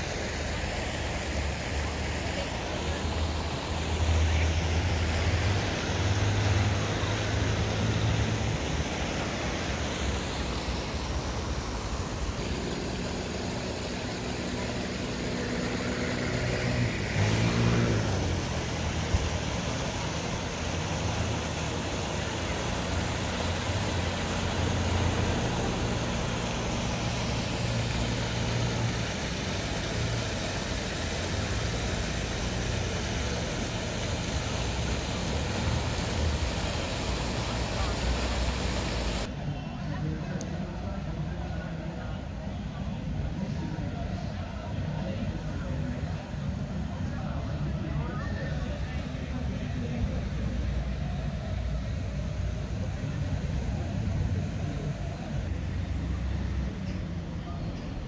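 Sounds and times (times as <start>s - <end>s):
road traffic: 0.0s - 58.0s
motor vehicle passing close: 12.2s - 39.3s.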